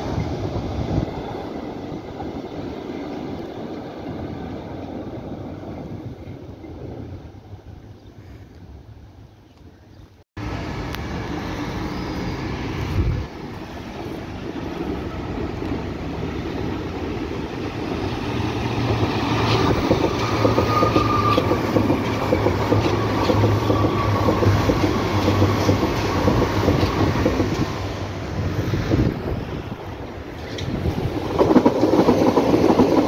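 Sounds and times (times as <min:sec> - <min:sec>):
street traffic noise: 0:08.5 - 0:31.5
train wheels clattering over rail joints: 0:18.6 - 0:27.8, 0:30.3 - 0:33.0
faint wheel squeal: 0:20.3 - 0:21.6.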